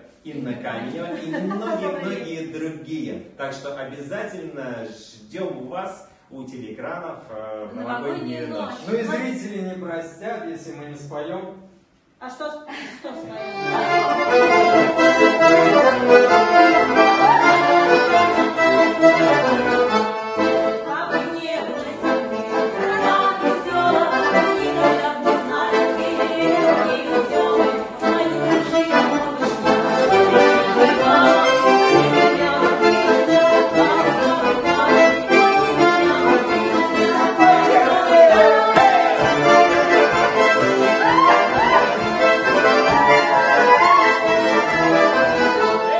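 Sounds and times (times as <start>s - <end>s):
accordions playing folk tune: 0.0s - 2.6s, 7.7s - 9.4s, 13.2s - 45.9s
voices singing: 0.3s - 2.4s, 13.3s - 45.9s.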